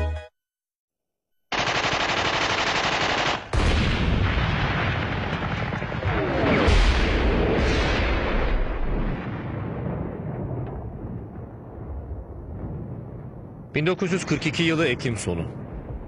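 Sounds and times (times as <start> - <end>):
machine-gun fire: 1.5 - 8.3.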